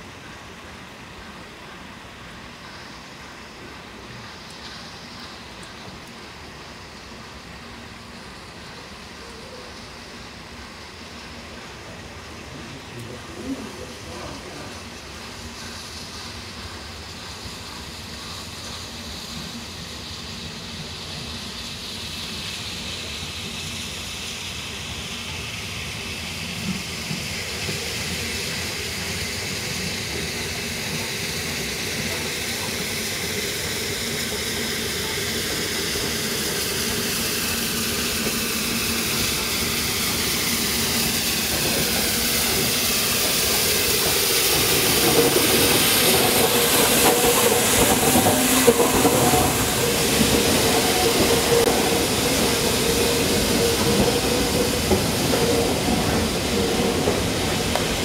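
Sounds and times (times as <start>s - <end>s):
steam locomotive approaching: 0.0s - 58.0s.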